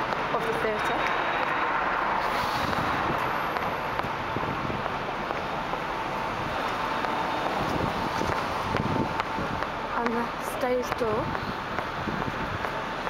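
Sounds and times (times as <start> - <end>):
city traffic: 0.0 - 13.0.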